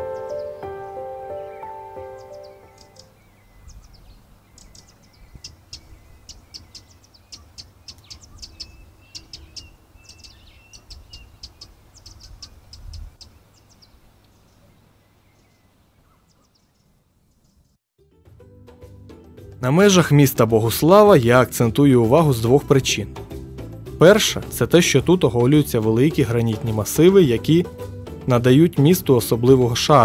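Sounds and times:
bird ticking calls: 0:00.0 - 0:17.7.

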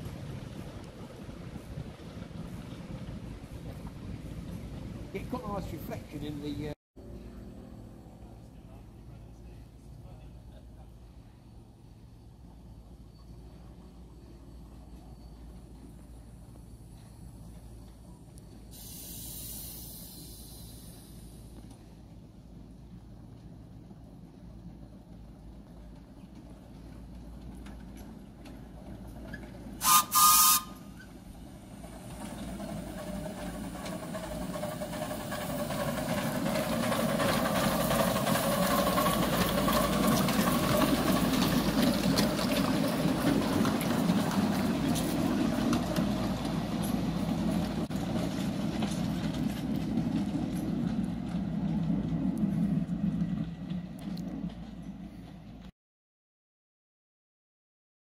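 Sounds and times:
steam locomotive rumbling past: 0:00.0 - 0:55.7
steam whistle toots: 0:29.8 - 0:31.1.

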